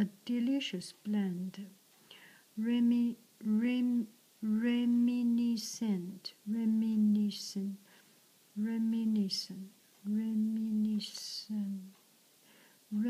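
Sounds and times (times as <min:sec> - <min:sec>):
woman singing long held notes: 0:02.6 - 0:07.9, 0:08.6 - 0:12.0.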